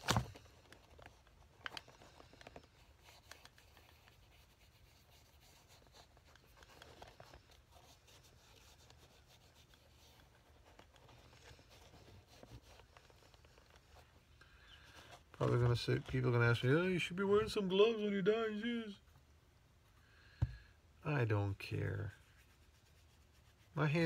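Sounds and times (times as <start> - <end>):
applicator rubbing on leather: 0.6 - 16.2.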